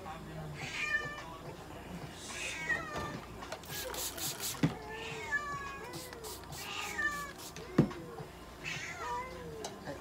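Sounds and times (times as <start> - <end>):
paper tissue rustling: 3.8 - 4.6.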